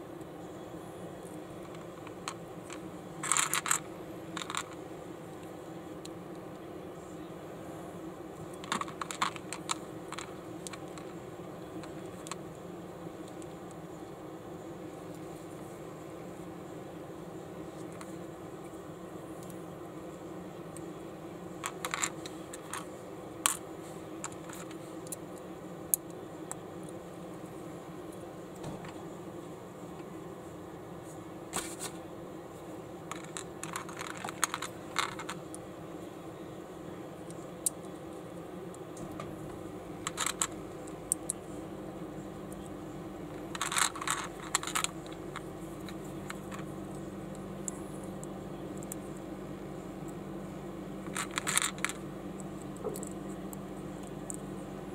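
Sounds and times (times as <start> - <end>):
steady low hum: 0.0 - 54.9
plastic building bricks clicking: 1.6 - 3.8, 4.4 - 4.8, 8.6 - 11.1, 21.6 - 22.8, 24.2 - 25.2, 33.1 - 35.4, 40.0 - 40.5, 43.4 - 45.4, 51.1 - 52.0.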